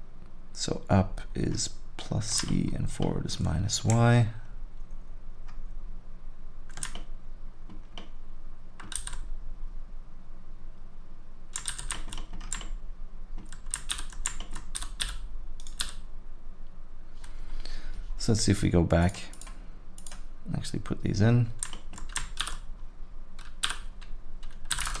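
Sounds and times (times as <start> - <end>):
computer keyboard clicks: 6.7 - 7.1, 8.8 - 9.3, 11.6 - 12.8, 13.4 - 16.0, 23.4 - 25.0.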